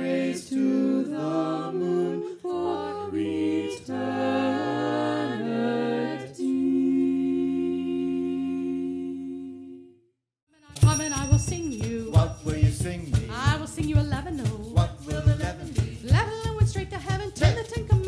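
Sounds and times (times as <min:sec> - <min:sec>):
group singing a cappella: 0:00.0 - 0:09.9, 0:14.6 - 0:16.5.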